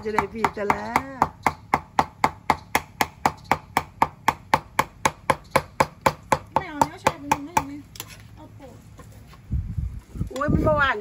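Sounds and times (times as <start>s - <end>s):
cleaver chopping on wooden block: 0.0s - 7.8s.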